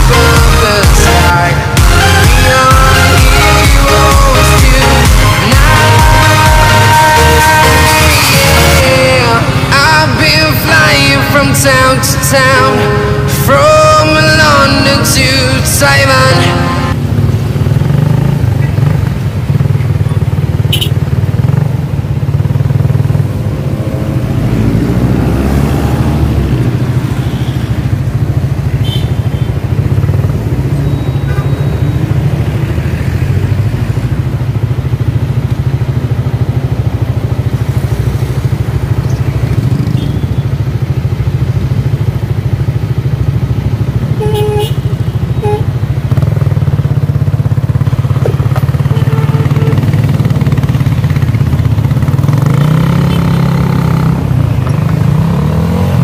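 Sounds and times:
motorcycle engine low drone: 0.0s - 56.0s
vehicle revving: 0.0s - 56.0s
short beeps: 30.7s - 32.3s.

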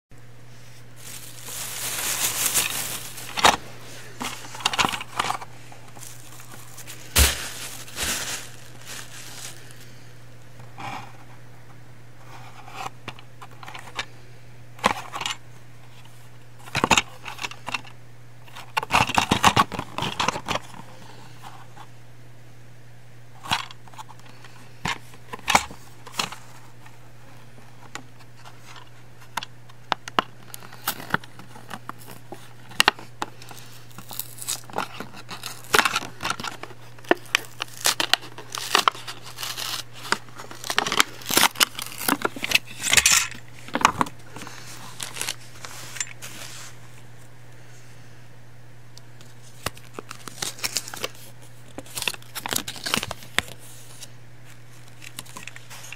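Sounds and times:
steady low hum: 0.1s - 55.9s
plastic packaging crinkling and tearing: 0.9s - 10.0s, 30.2s - 46.5s, 49.4s - 54.1s.

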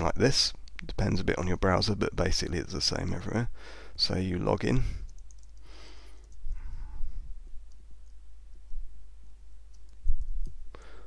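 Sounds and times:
steady low hum: 0.0s - 11.0s
mouse clicks: 5.0s - 6.4s, 9.7s - 10.6s
typing on a keyboard: 5.0s - 6.4s.

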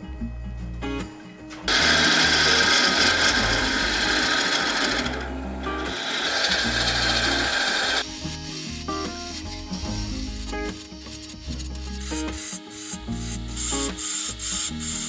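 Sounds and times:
background music: 0.0s - 15.0s
lathe gouge scraping wood: 1.7s - 8.0s.

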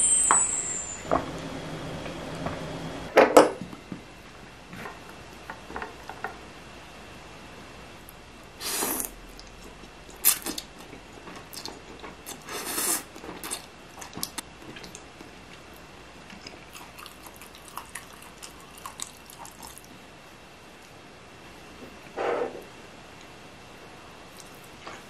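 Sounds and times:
chewing: 9.4s - 15.6s, 16.3s - 20.0s, 24.3s - 25.0s.

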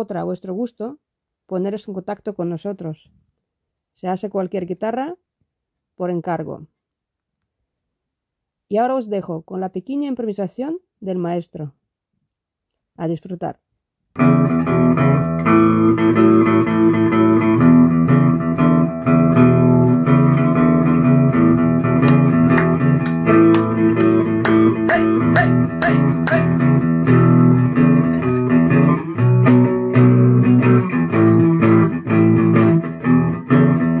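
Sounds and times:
electric guitar playing: 14.2s - 34.0s.

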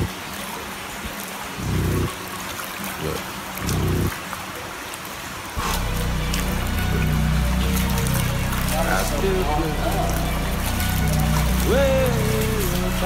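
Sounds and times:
running floodwater hiss: 0.0s - 13.0s
rap track with deep bass: 5.6s - 13.0s.

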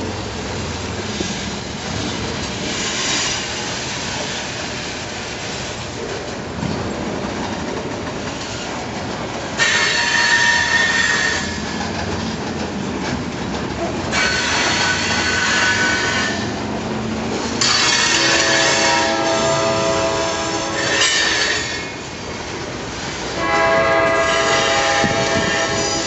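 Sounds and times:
train wheels rumbling on rail: 0.0s - 26.0s
wheel squeal: 9.6s - 11.8s.

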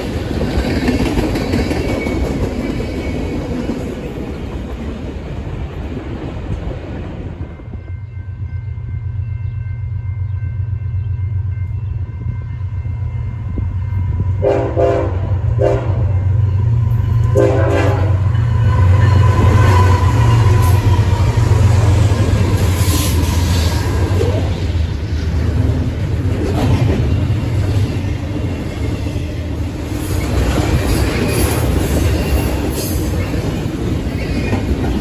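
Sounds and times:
train wheel noise: 0.0s - 35.0s
locomotive horn blasts: 14.4s - 16.3s, 17.2s - 20.7s.

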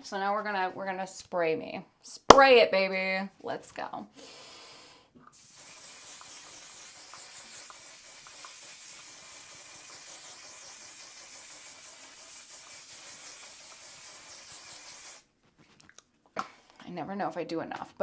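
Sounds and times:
spray bottle mist hissing: 5.3s - 15.3s.

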